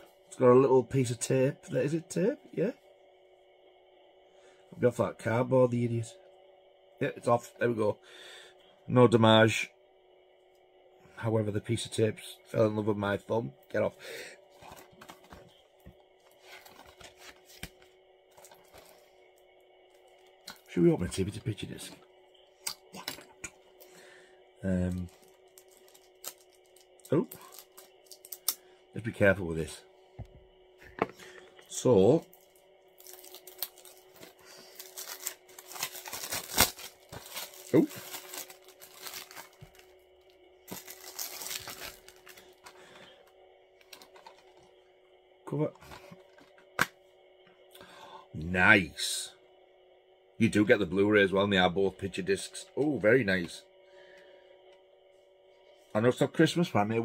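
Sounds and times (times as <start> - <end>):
packaging rustling: 14.6 - 19.0, 24.9 - 28.5, 32.3 - 40.0, 40.6 - 43.2, 43.8 - 44.7
shrink-wrap crinkling and tearing: 24.8 - 28.6, 32.3 - 39.9, 40.7 - 42.9.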